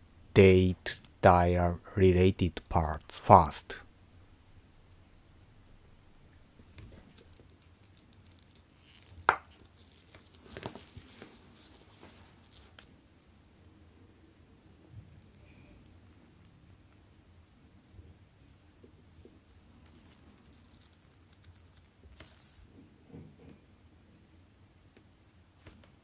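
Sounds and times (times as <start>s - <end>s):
scratching and rustling: 6.6s - 12.9s, 19.8s - 22.8s.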